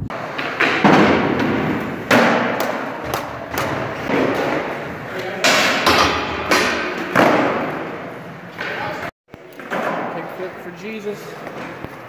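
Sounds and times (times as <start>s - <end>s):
skateboards thudding on hard floor: 0.1s - 7.9s, 9.6s - 10.1s.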